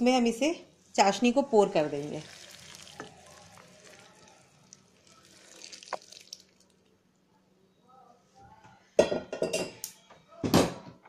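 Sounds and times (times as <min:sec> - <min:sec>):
syrup trickling and dripping: 0:01.9 - 0:07.0.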